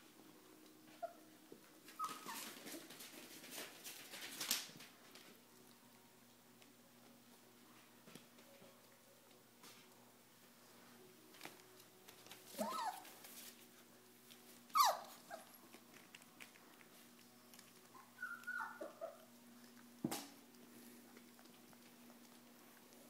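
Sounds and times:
puppies crying: 0:12.6 - 0:13.2, 0:14.7 - 0:15.6, 0:17.9 - 0:19.3.

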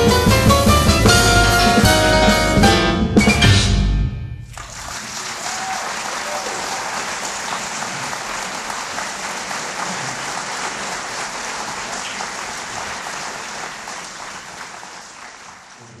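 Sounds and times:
audience applause: 0:04.5 - 0:16.0.

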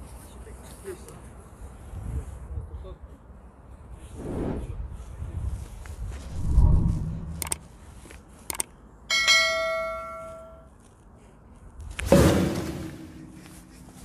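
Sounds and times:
low rumble: 0:04.1 - 0:07.6
sharp clicks: 0:07.3 - 0:07.6, 0:08.5 - 0:08.7
bell-like ding: 0:09.1 - 0:10.7.

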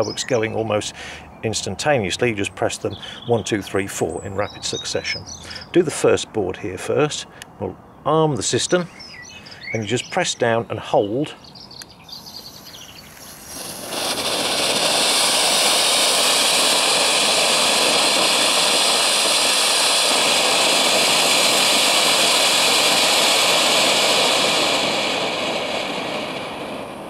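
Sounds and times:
fountain firework hissing: 0:00.0 - 0:04.7, 0:12.4 - 0:27.0.

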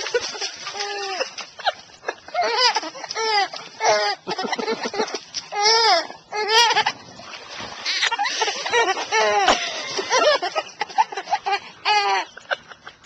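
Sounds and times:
baby giggling: 0:00.2 - 0:06.9.

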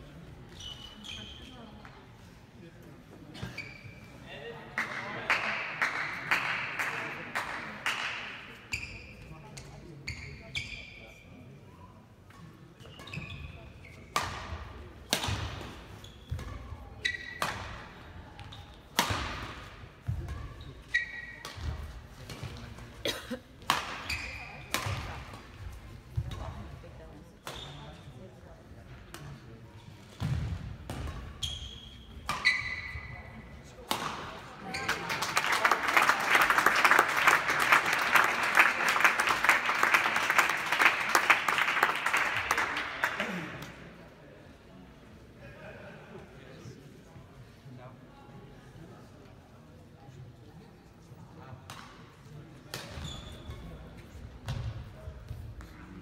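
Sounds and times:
shoes squeaking on court floor: 0:00.4 - 0:01.9, 0:03.2 - 0:04.2, 0:08.6 - 0:11.3, 0:12.8 - 0:14.2, 0:15.9 - 0:17.5, 0:20.0 - 0:22.7, 0:23.8 - 0:26.5, 0:29.8 - 0:35.2, 0:52.8 - 0:54.7
racket striking shuttlecock: 0:33.9 - 0:34.3
spectators applauding: 0:34.9 - 0:43.4.

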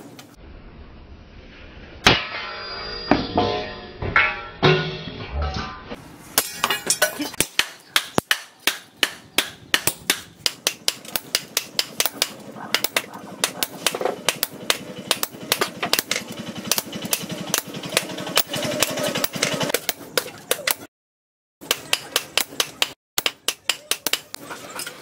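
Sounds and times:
hammer striking chisel on steel: 0:06.4 - 0:20.9, 0:21.6 - 0:24.4.

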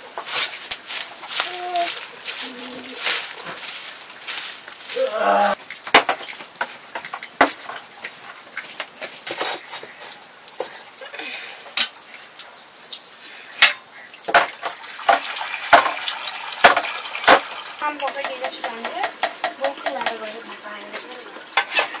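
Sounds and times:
metal pots and utensils clinking: 0:05.6 - 0:11.9, 0:13.6 - 0:22.0.

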